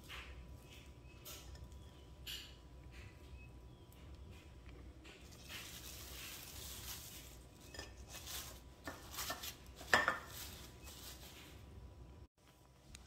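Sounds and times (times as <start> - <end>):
cling wrap rustling and crinkling: 5.2 - 11.8.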